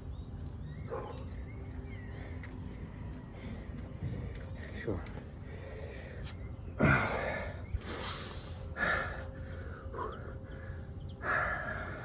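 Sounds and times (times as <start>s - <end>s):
man breathing hard: 5.4s - 12.0s.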